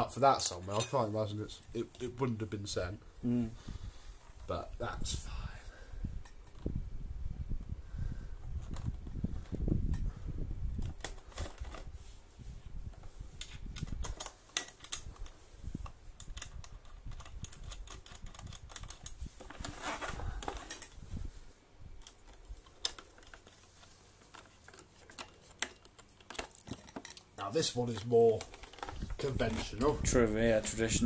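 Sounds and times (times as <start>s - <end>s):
clicks and knocks of handled parts: 8.5s - 10.1s, 10.7s - 11.9s, 12.9s - 21.0s, 22.0s - 30.9s
short rustle: 19.1s - 21.6s.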